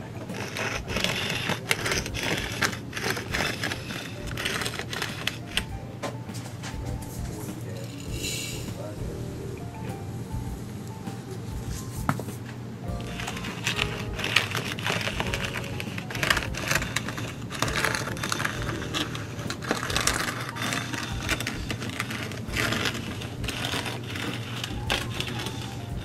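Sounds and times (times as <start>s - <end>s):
gravel rattling in plastic spreader: 0.0s - 5.7s, 13.0s - 26.0s.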